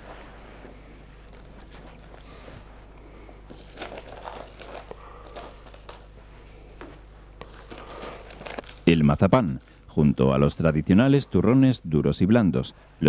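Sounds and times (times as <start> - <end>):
faint low hum: 0.0 - 13.0
paper rustling and crinkling: 3.5 - 6.2, 7.4 - 9.6.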